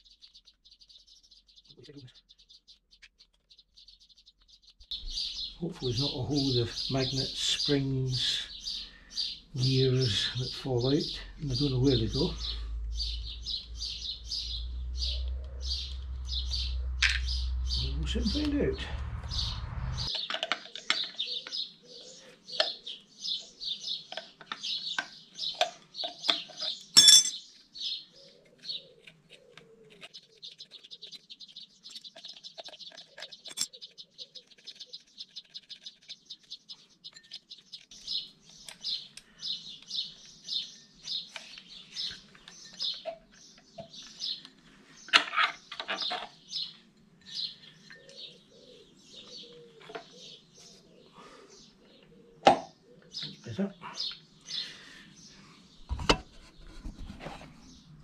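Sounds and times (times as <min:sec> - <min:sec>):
small birds chirping: 0:00.0 - 0:58.0
bird trilling: 0:04.8 - 0:20.2
metal tools clinking: 0:27.0 - 0:27.4, 0:33.5 - 0:33.7.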